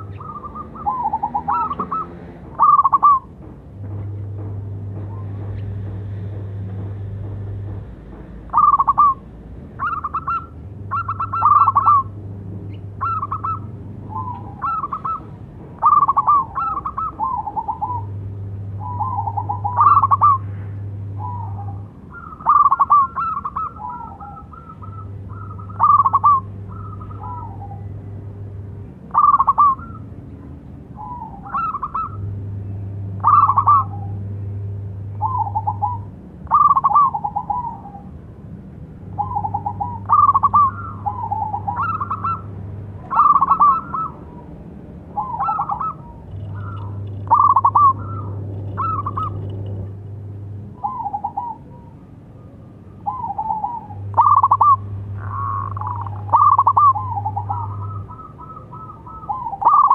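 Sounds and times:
dove cooing: 0.0 - 3.3, 8.5 - 9.2, 9.8 - 27.9, 29.1 - 30.0, 31.0 - 32.2, 33.2 - 34.2, 35.1 - 38.2, 39.1 - 50.0, 50.8 - 52.0, 53.0 - 59.9.

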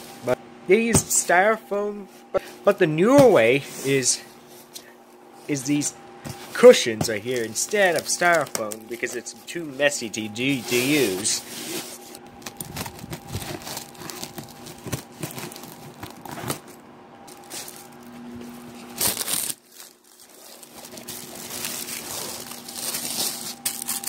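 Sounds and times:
packing wrap crinkling: 6.7 - 9.5, 12.0 - 24.0.

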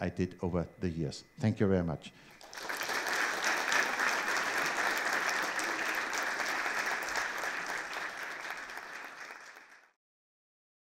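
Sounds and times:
audience applauding: 2.3 - 10.0.

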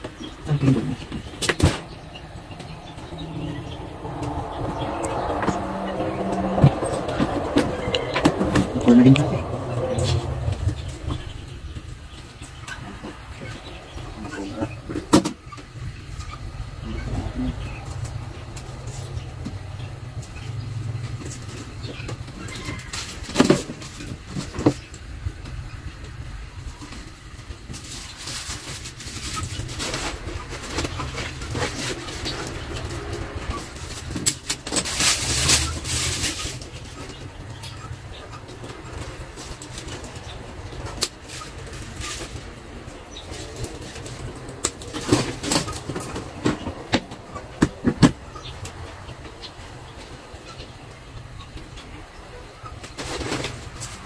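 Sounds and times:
steady low hum: 0.0 - 22.6.

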